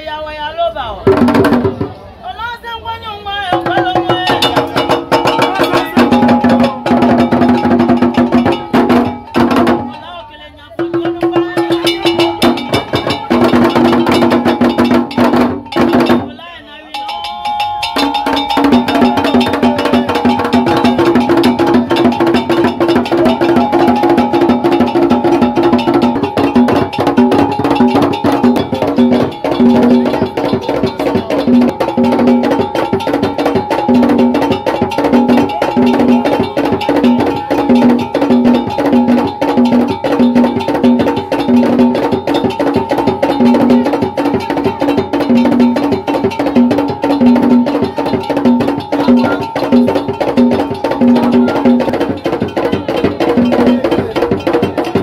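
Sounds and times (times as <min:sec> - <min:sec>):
fast percussion clatter: 0:00.9 - 0:02.0, 0:03.4 - 0:55.0
high ringing tone: 0:11.6 - 0:53.7.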